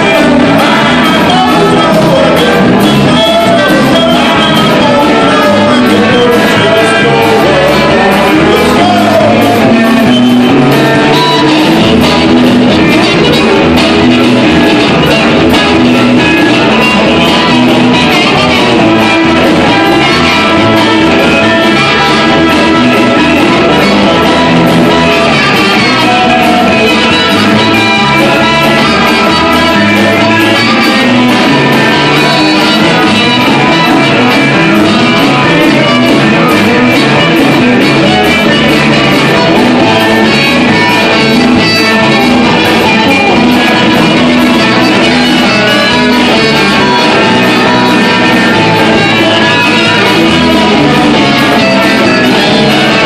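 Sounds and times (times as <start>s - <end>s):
blues band playing: 0.0s - 53.0s
harmonica: 0.0s - 53.0s
trumpet: 0.0s - 53.0s.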